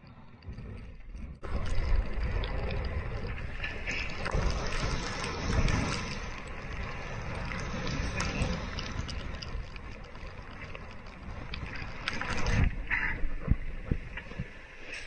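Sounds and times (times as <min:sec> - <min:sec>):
sea water rushing: 0:00.0 - 0:15.0
wind: 0:00.0 - 0:15.0.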